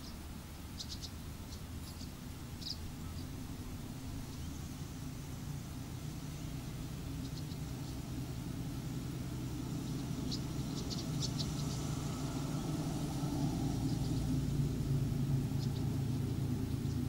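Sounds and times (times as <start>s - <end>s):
bird chirps: 0.0s - 3.4s, 7.1s - 8.1s, 9.8s - 14.4s, 15.4s - 17.0s
low engine rumble: 0.0s - 17.0s.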